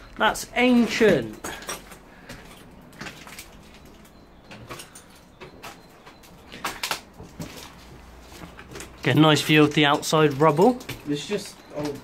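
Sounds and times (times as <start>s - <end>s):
footsteps on debris: 0.2s - 4.2s.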